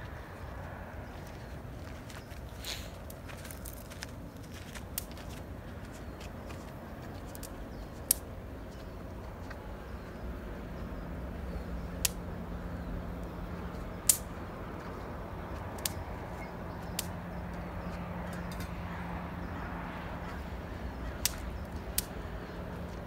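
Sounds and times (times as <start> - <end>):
low hum: 0.0 - 23.0
low outdoor rumble: 0.0 - 23.0
campfire popping: 2.6 - 6.4, 7.0 - 8.9, 11.3 - 12.5, 13.1 - 18.8, 19.6 - 23.0.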